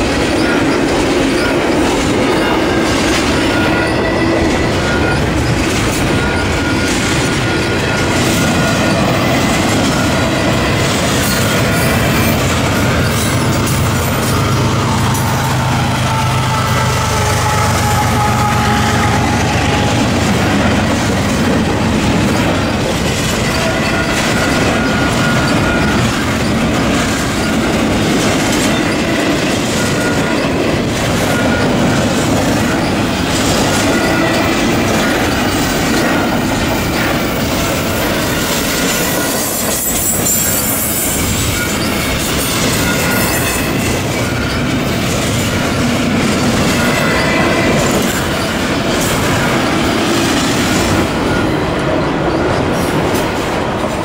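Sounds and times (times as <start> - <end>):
high wheel squeals: 0.0 - 53.2
train wheels rumbling on rails: 0.0 - 54.0.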